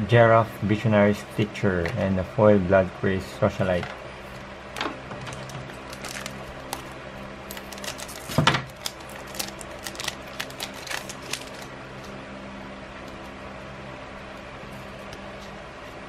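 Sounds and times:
steady low hum: 0.0 - 16.0
foil wrapper crinkling: 5.2 - 11.7
scissors snipping foil wrapper: 5.3 - 6.9, 7.5 - 11.7.

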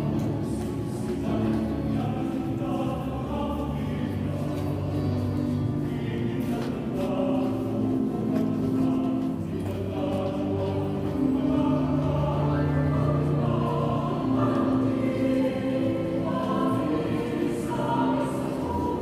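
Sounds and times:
group singing a carol: 0.0 - 19.0.

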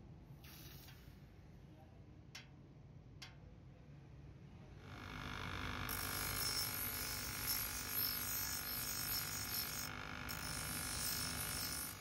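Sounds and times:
grinder motor hum: 4.8 - 12.0.

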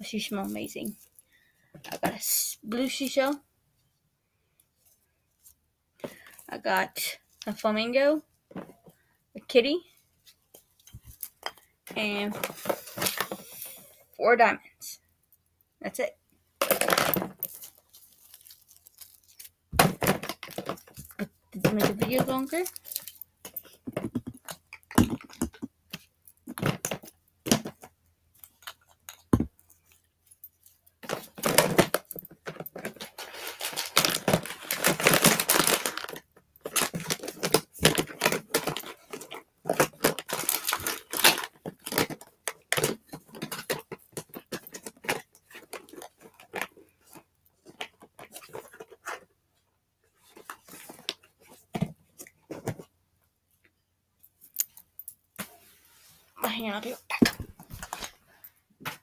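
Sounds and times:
rustling and crinkling: 0.1 - 7.6, 8.2 - 9.1, 9.8 - 14.1, 16.6 - 59.0
clicks and knocks of handling: 16.6 - 33.3, 33.9 - 49.3.

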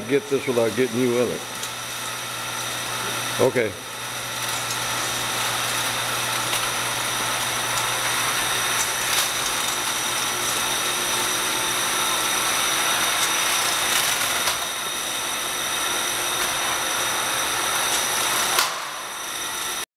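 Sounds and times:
box rolling on roller conveyor: 4.7 - 19.8.

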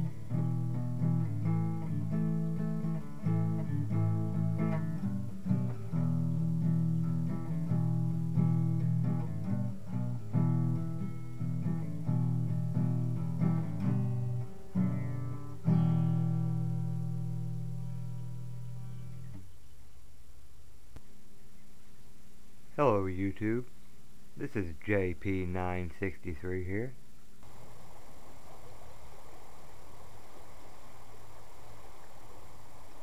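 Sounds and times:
guitar picking and strumming: 0.0 - 19.5.

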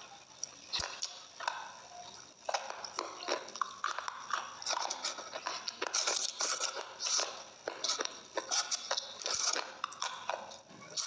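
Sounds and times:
close eating bites and crunches: 2.4 - 11.0.

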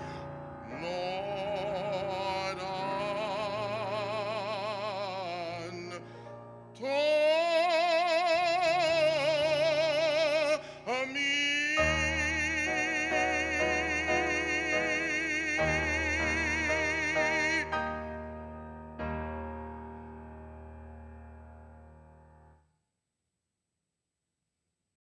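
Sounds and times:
man singing with vibrato: 0.0 - 6.2, 6.8 - 18.2
keyboard accompaniment: 0.0 - 22.6.

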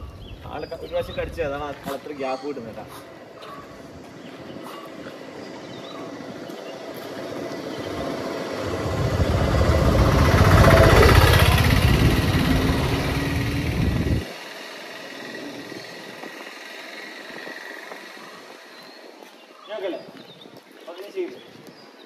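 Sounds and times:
vehicle driving past: 5.2 - 18.8.

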